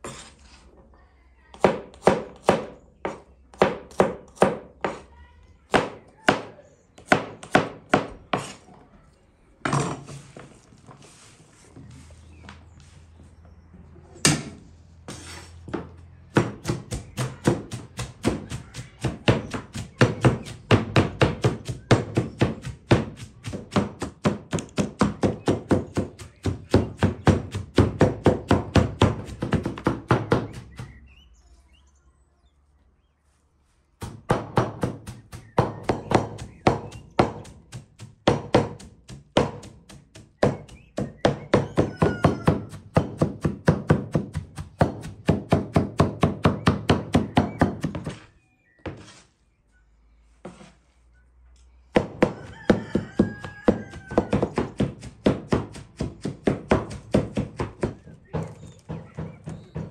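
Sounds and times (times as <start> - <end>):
knife chopping on wooden board: 1.6 - 5.1, 5.7 - 8.6, 15.7 - 31.0, 34.0 - 48.2, 52.0 - 59.9.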